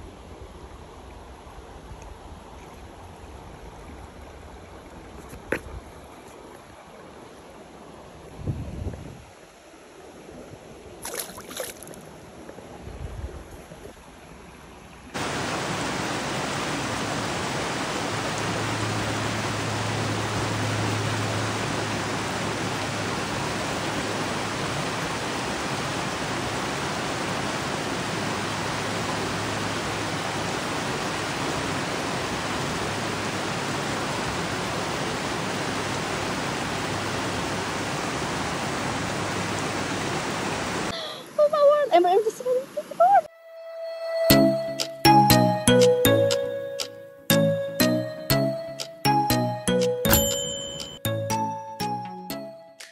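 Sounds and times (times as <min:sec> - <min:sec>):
rushing mountain stream: 0:00.0 - 0:43.2.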